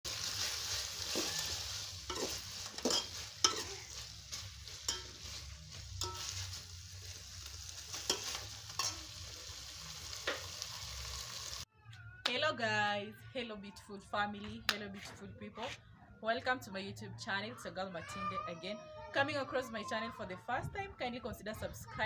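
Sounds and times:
food sizzling: 0:00.0 - 0:11.7
metal spoon scraping a pot: 0:00.7 - 0:06.8, 0:07.8 - 0:09.2.

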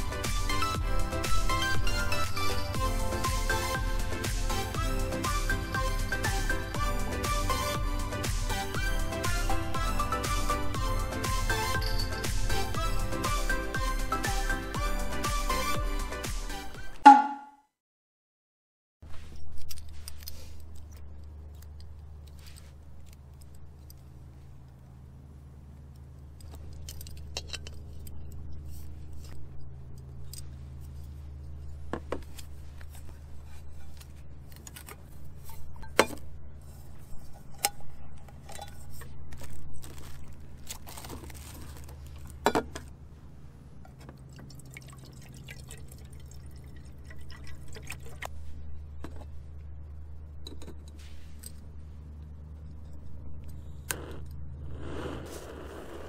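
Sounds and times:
steady low hum: 0:19.1 - 0:56.0
camping stove parts clicking: 0:26.0 - 0:30.5.

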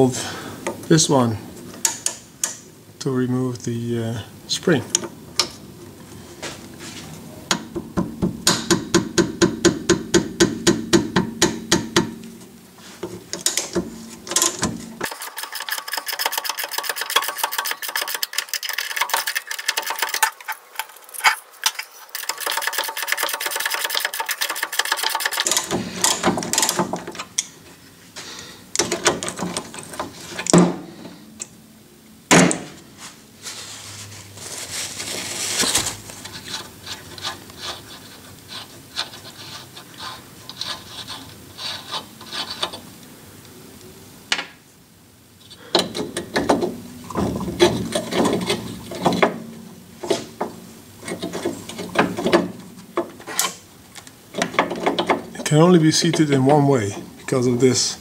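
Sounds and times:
sharp metal knocks: 0:07.6 - 0:12.4
ratchet wrench clicking: 0:15.0 - 0:20.4, 0:21.2 - 0:25.7.

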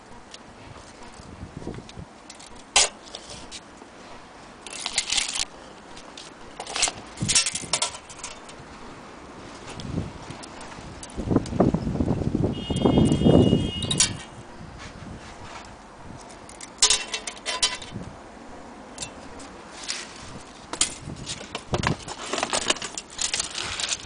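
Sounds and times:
light metallic rattling: 0:04.6 - 0:08.6, 0:16.2 - 0:18.0.

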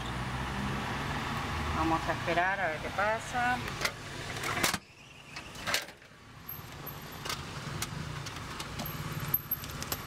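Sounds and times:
sharp clicks and knocks: 0:06.7 - 0:10.0.

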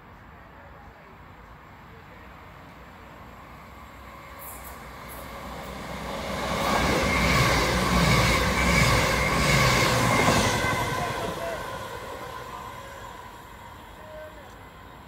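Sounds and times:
train engine drone: 0:00.2 - 0:15.0
train wheels rushing on rail: 0:03.4 - 0:15.0.

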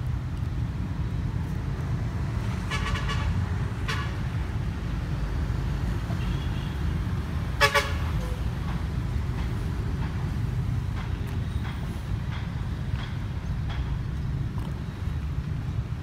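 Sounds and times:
boat horn toots: 0:07.6 - 0:08.2.

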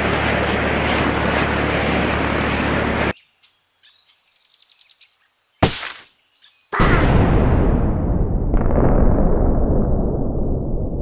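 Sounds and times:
propeller aircraft engines droning: 0:00.0 - 0:03.2
rush of wind: 0:00.0 - 0:03.2
faint bird chirps: 0:03.2 - 0:05.6
sudden loud burst: 0:06.8 - 0:11.0.

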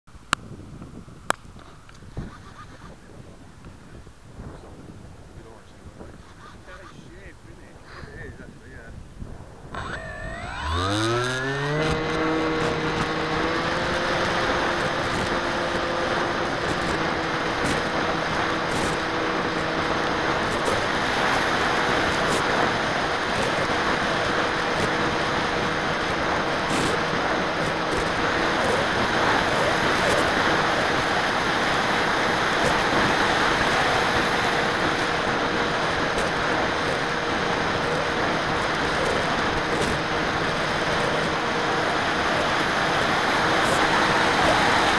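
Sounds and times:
wind rushing over microphone: 0:00.2 - 0:44.9
model aircraft motor and propeller: 0:09.6 - 0:44.9.

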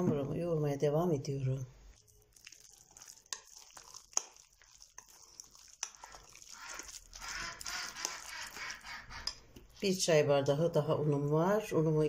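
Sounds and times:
hand squelching wet dough: 0:01.7 - 0:09.9.

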